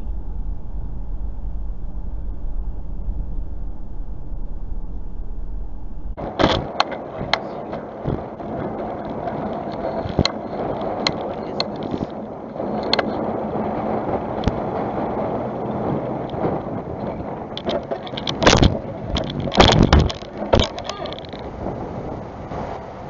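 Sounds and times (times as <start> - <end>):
car cabin road rumble: 0.0 - 23.0
harsh rushing road noise: 0.0 - 23.0
sharp knocks and clicks: 6.2 - 12.2, 16.2 - 21.5.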